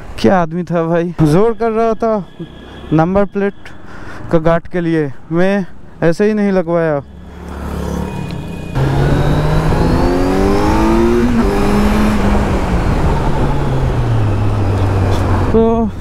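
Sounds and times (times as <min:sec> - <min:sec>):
motorcycle engine: 0:07.0 - 0:15.7
wind rushing over microphone: 0:08.8 - 0:16.0.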